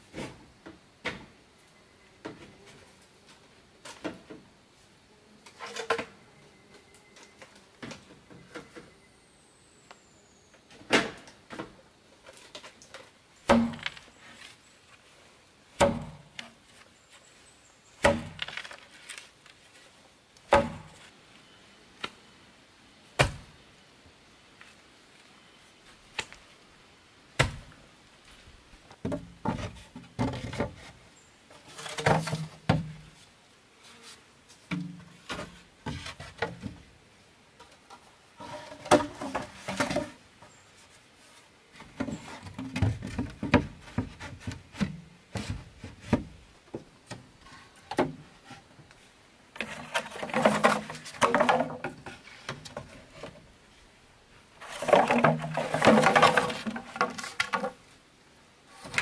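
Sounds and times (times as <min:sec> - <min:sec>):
bamboo poles knocking: 0:13.5 - 0:14.0, 0:15.8 - 0:16.4, 0:18.0 - 0:18.6, 0:20.5 - 0:21.0, 0:49.6 - 0:53.0, 0:54.8 - 0:57.8.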